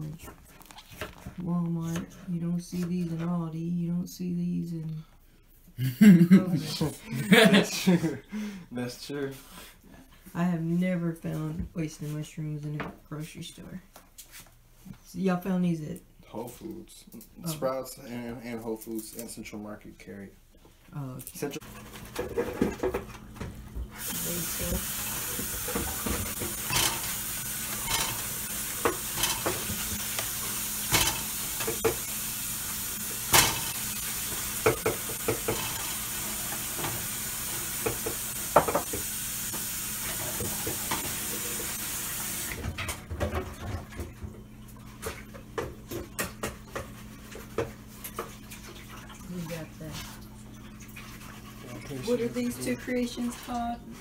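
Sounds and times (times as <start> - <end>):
steady kitchen hiss: 3.5 - 10.6, 16.6 - 43.3, 51.1 - 54.0
cookware and utensils clinking: 21.4 - 41.9, 42.6 - 53.8.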